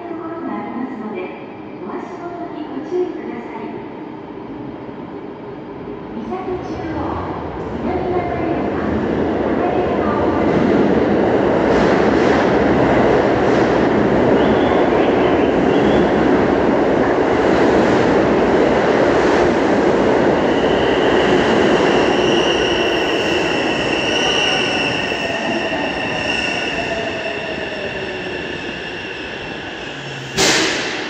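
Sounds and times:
train wheels and air rushing: 8.8 - 31.0.

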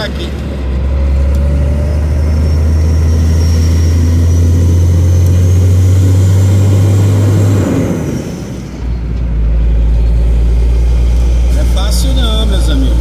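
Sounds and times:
vehicle engine pulling: 0.0 - 13.0
faint high whine: 1.9 - 13.0.

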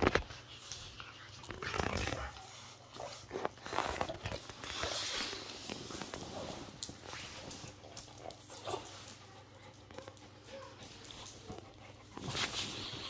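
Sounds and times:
dog growling: 1.3 - 5.7.

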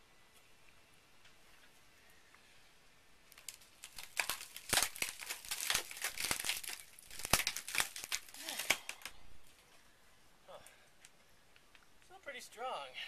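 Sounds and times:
fibreglass cracking and tearing: 3.3 - 9.6.

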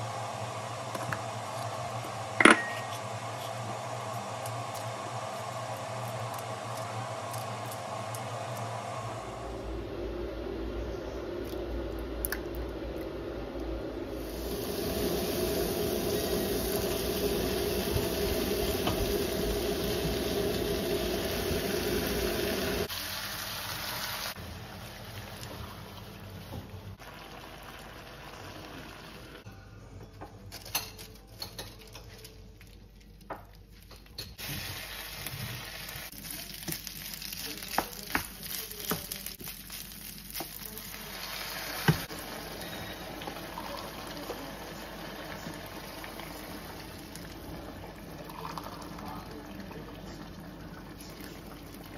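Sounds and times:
beef sizzling in a pan: 14.2 - 25.3, 34.4 - 47.4.

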